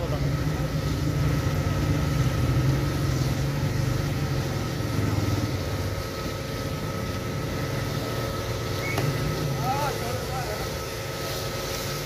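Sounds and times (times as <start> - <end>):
food sizzling in hot oil: 0.0 - 12.0
steady low hum: 0.0 - 12.0.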